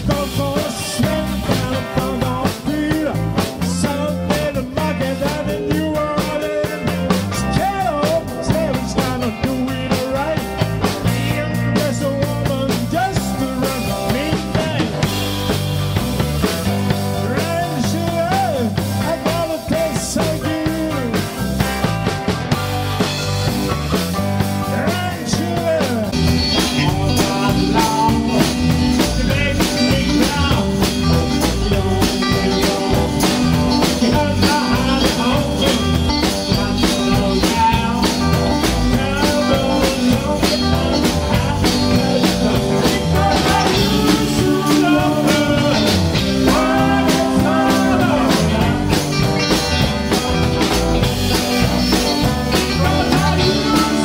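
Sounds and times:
man singing lead: 0.0s - 22.2s, 24.1s - 54.0s
bass: 0.0s - 54.0s
drum kit: 0.0s - 54.0s
electric guitars: 0.0s - 54.0s
keyboard: 0.0s - 54.0s.

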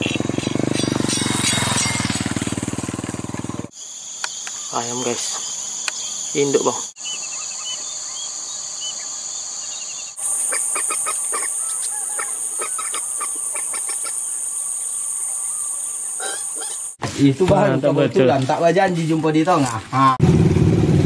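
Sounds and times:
high-pitched insect chorus: 0.0s - 20.0s
short bird calls: 9.6s - 17.0s.

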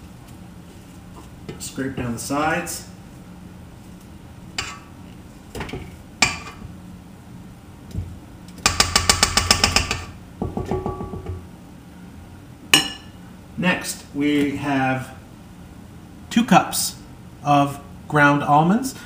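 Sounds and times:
rapid taps on metal bowl: 8.6s - 11.4s.

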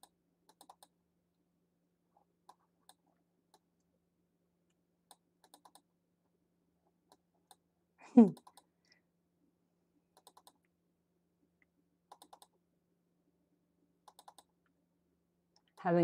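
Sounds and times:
computer mouse clicks: 0.0s - 1.0s, 2.4s - 3.7s, 5.1s - 5.9s, 8.3s - 8.7s, 10.1s - 10.7s, 12.1s - 12.6s, 14.0s - 14.7s
faint electrical hum: 0.0s - 16.0s.

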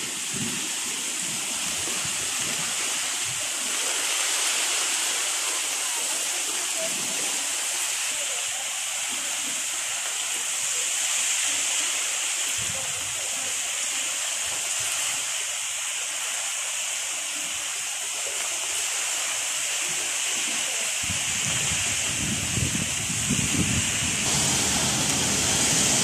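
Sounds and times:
heavy rain: 0.0s - 14.1s, 18.3s - 26.0s
low rumble: 24.2s - 26.0s.

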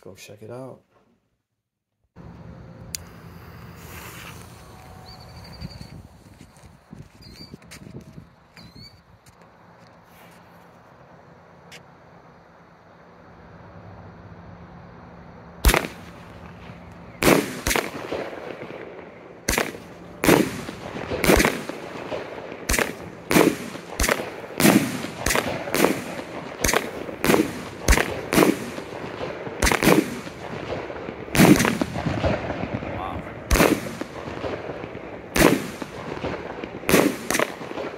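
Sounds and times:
firework cake bangs: 19.5s - 37.9s.

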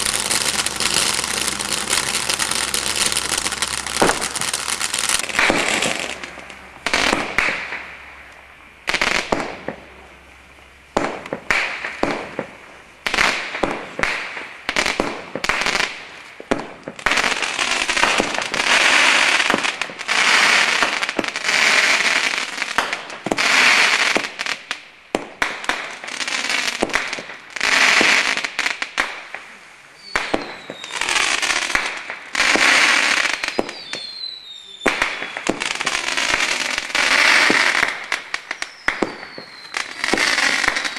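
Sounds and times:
fireworks launch pops and bursts: 0.0s - 9.9s, 10.9s - 40.9s
long dense firework bursts: 0.0s - 40.9s.

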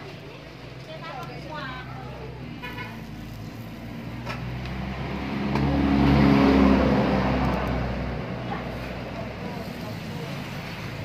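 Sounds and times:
vehicle passing by: 0.0s - 11.0s.

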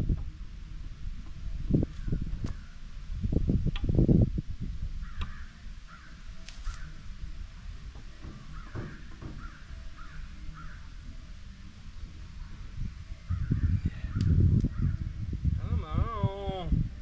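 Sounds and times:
low rumbling outdoor noise: 0.0s - 17.0s
crow cawing: 5.0s - 7.0s, 8.5s - 10.9s.

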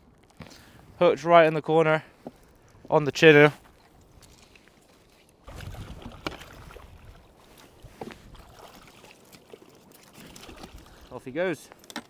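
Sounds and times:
water sloshing: 3.7s - 12.0s.

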